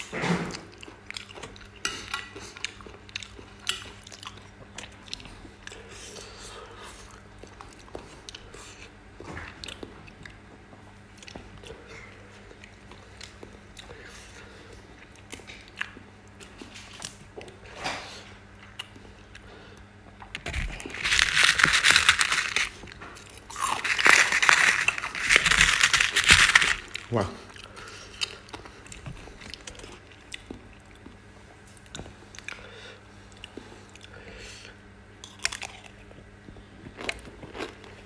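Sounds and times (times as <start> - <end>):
crisp crunching and crackling: 20.4 - 27.2.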